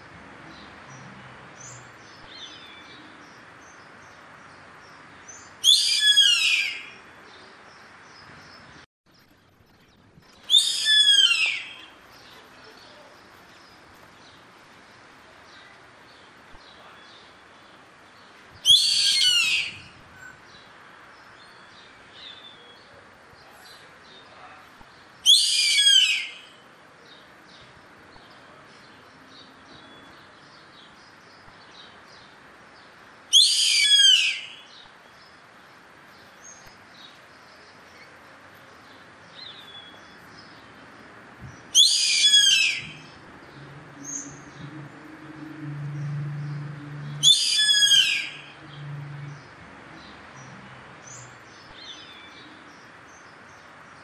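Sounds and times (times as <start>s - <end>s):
bird high calls: 5.6s - 7.0s, 10.4s - 13.0s, 18.6s - 20.4s, 25.2s - 26.6s, 33.3s - 34.9s, 41.7s - 43.2s, 47.1s - 48.8s.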